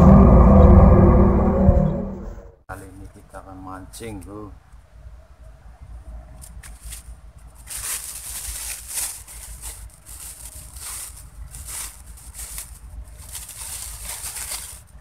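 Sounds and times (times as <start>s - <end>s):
low steady rumble: 0.0s - 3.2s, 7.0s - 15.0s
rustling and handling noises: 6.3s - 15.0s.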